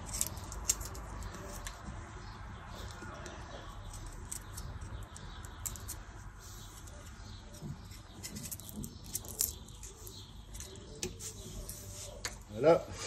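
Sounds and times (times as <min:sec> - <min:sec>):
garlic skin crackling and rustling: 0:00.0 - 0:01.8.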